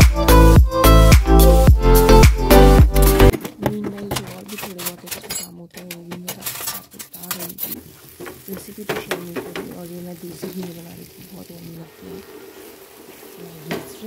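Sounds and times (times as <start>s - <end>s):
food sizzling: 6.4s - 14.0s
wooden spatula scraping a pan: 6.4s - 14.0s.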